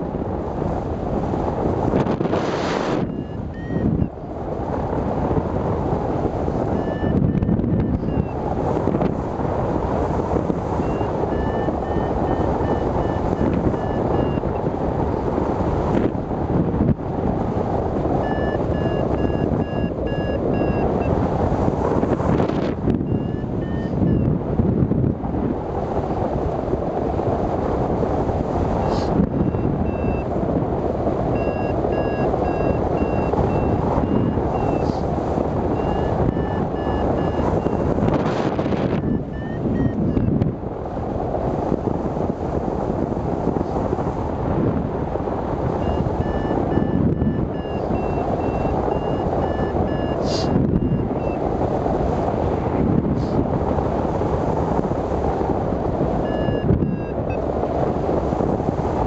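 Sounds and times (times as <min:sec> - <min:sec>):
strong wind on microphone: 0:00.0 - 0:59.0
variometer beeping: 0:02.9 - 0:04.2, 0:06.6 - 0:08.4, 0:10.6 - 0:14.6, 0:18.1 - 0:21.2, 0:22.0 - 0:24.3, 0:29.3 - 0:30.3, 0:31.3 - 0:35.0, 0:35.6 - 0:40.5, 0:45.5 - 0:51.8, 0:56.2 - 0:57.5.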